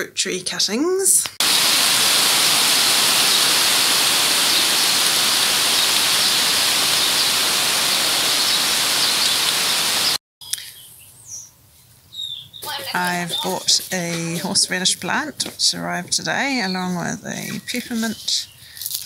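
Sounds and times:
heavy rain pouring: 1.4s - 10.2s.

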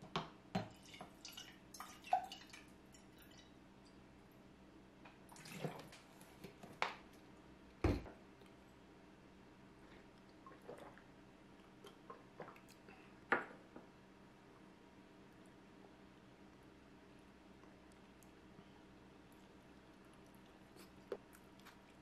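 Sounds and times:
water trickling into glass pitcher: 0.7s - 3.6s.

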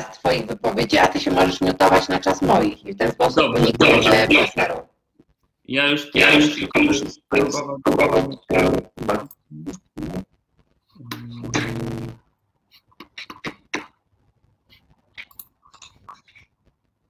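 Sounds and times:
man speaking over video call: 3.0s - 4.8s, 5.7s - 9.7s, 11.0s - 11.9s.

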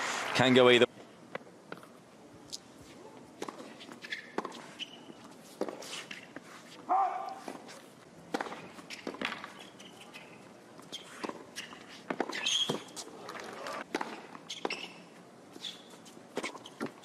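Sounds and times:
racket hitting tennis ball: 3.4s - 4.9s, 6.9s - 15.0s
tennis ball bouncing: 3.4s - 6.2s, 6.9s - 17.0s
shoe squeaks on court: 3.5s - 7.8s, 8.8s - 13.8s, 14.4s - 17.0s.

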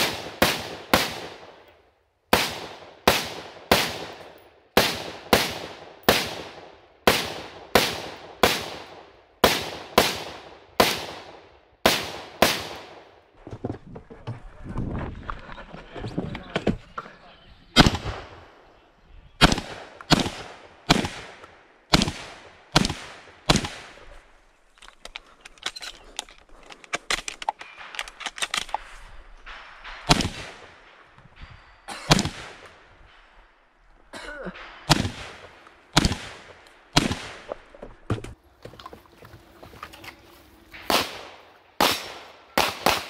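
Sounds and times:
shotgun shots: 0.0s - 1.7s, 2.3s - 13.1s, 17.8s - 18.6s, 19.4s - 24.0s, 29.5s - 31.1s, 32.1s - 33.2s, 34.6s - 37.6s, 40.8s - 43.0s
shells being loaded clicks: 24.7s - 28.9s.

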